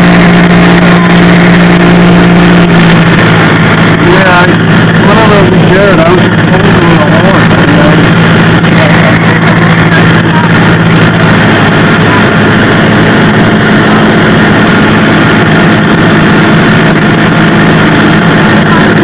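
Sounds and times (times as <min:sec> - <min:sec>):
airplane engine and propeller drone: 0:00.0 - 0:19.0.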